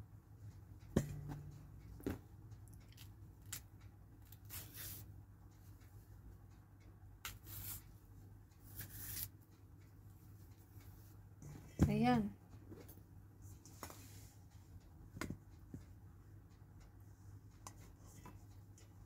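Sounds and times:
steady low hum: 0.0 - 4.4.

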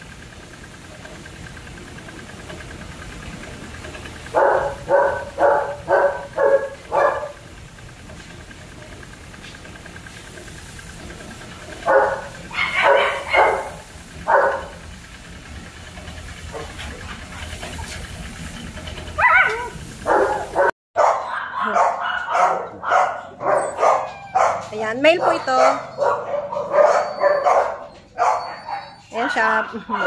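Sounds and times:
dog barking: 4.3 - 7.4, 11.8 - 14.8, 19.2 - 30.0.

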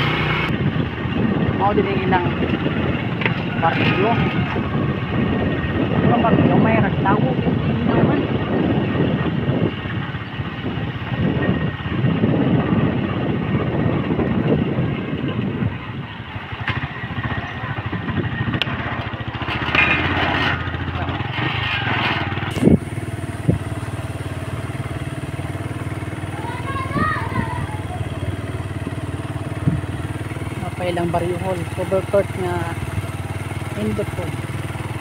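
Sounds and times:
motorcycle engine running: 0.0 - 35.0
wind rumbling on microphone: 0.0 - 35.0.

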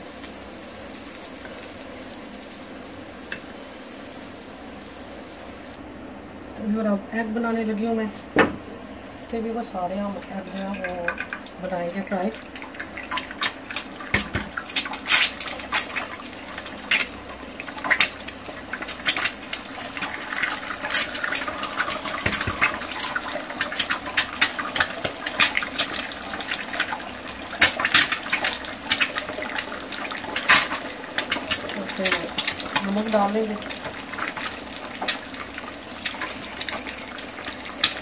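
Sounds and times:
eggs sizzling in a frying pan: 0.0 - 5.8, 9.7 - 38.0.

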